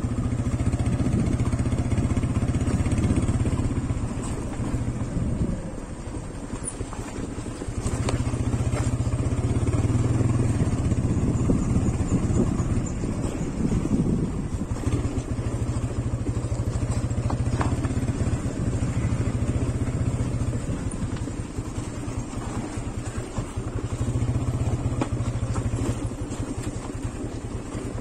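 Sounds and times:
motorcycle engine running: 0:00.0 - 0:28.0.

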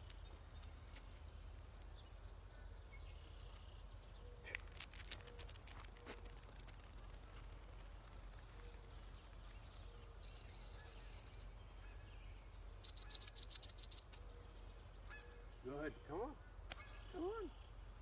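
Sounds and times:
dog whistle blasts: 0:10.2 - 0:11.6, 0:12.8 - 0:14.2.

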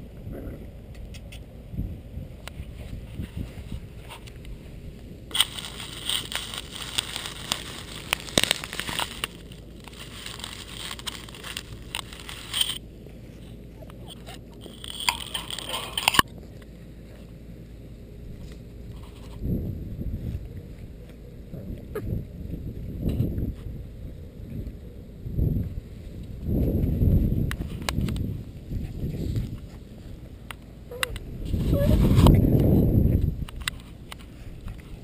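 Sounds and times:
puppies rustling through grass: 0:02.6 - 0:17.7, 0:25.8 - 0:35.0.

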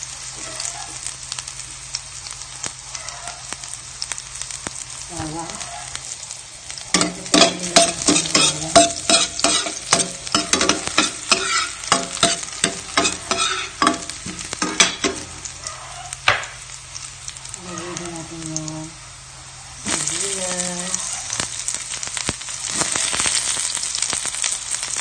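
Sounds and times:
garlic sizzling in oil: 0:00.0 - 0:25.0
utensil scraping metal pan: 0:06.9 - 0:15.4.

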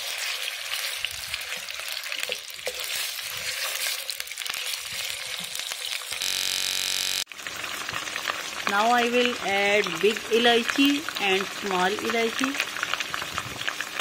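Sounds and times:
chicken sizzling in hot oil: 0:00.0 - 0:14.0
spatula scraping pan: 0:02.7 - 0:05.6
short steady buzz: 0:06.2 - 0:07.3.

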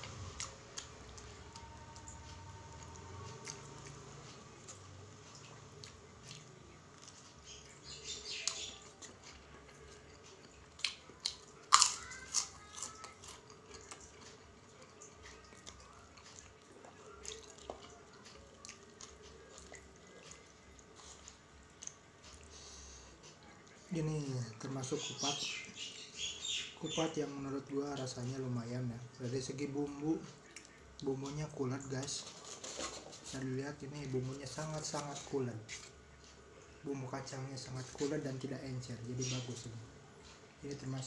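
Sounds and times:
person chewing food: 0:00.0 - 0:23.9, 0:30.3 - 0:36.8.

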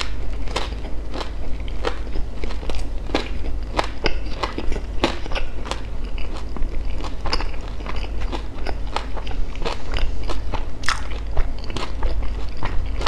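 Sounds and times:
chewing crispy pastry: 0:00.0 - 0:13.0
wet mouth clicks: 0:10.8 - 0:11.1.

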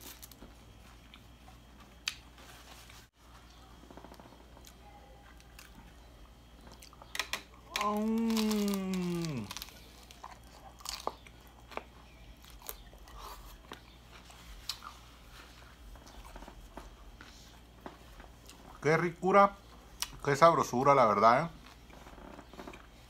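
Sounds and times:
crunchy chewing: 0:00.0 - 0:18.8
man humming falling pitch: 0:07.7 - 0:09.6.

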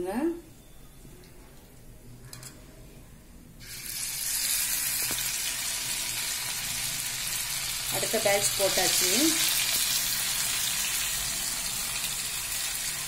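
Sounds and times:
fish sizzling in hot oil: 0:03.6 - 0:13.0.

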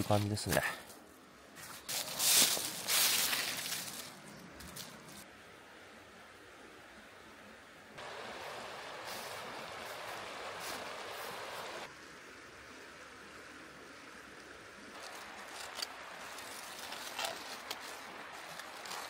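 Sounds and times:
aluminium foil crinkling: 0:01.9 - 0:05.2, 0:15.0 - 0:19.0
rocky river running: 0:08.0 - 0:19.0.

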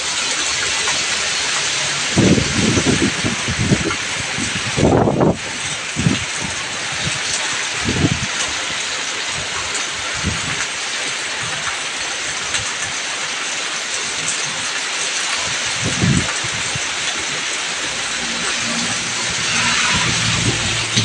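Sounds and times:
heavy rain falling: 0:00.0 - 0:21.0.

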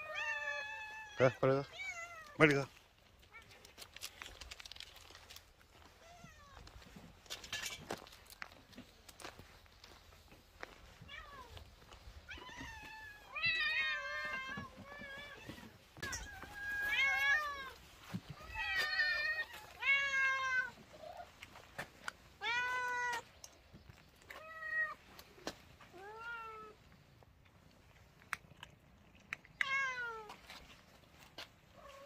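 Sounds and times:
cats meowing: 0:00.0 - 0:02.4, 0:05.8 - 0:07.0, 0:10.9 - 0:27.2, 0:29.0 - 0:30.6.

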